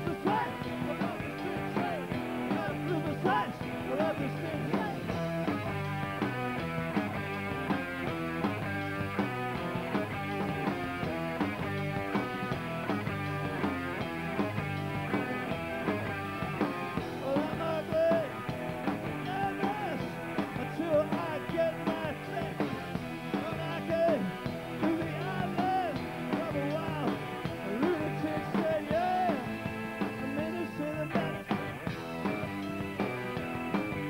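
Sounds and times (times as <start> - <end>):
man singing lead vocal: 0.0 - 5.2, 17.2 - 18.4, 19.2 - 29.6, 30.2 - 31.4
rock band playing live: 0.0 - 34.0.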